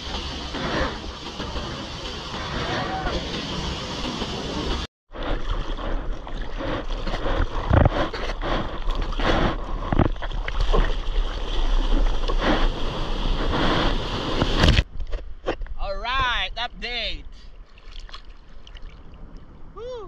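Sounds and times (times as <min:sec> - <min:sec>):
breaking wave whitewater rushing: 0:00.0 - 0:04.9
water rushing along board: 0:00.0 - 0:14.8
hands paddling and splashing: 0:05.3 - 0:12.4, 0:17.6 - 0:19.2.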